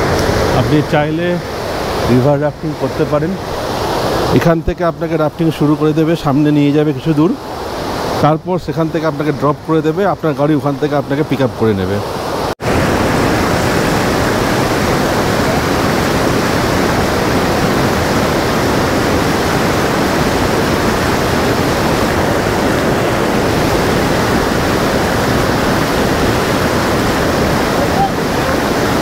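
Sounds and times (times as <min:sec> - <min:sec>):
whitewater rapids rushing: 0:00.0 - 0:29.0.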